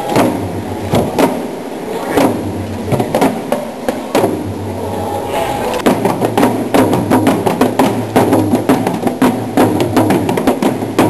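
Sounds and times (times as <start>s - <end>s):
drum beats: 0.0s - 4.8s, 5.7s - 11.0s.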